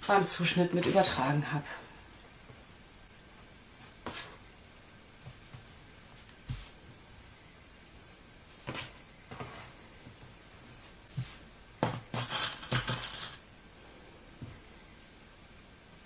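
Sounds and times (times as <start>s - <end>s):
hands brushing fabric: 6.1s - 6.8s.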